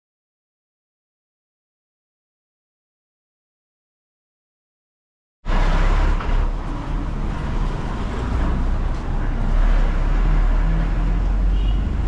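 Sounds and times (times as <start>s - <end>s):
street traffic rumble: 5.5s - 12.0s.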